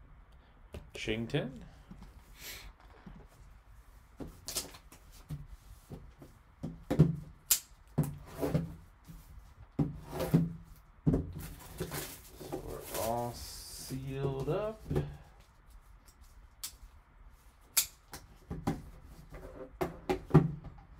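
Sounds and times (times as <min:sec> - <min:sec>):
plastic wrap crinkling: 0:11.4 - 0:14.8.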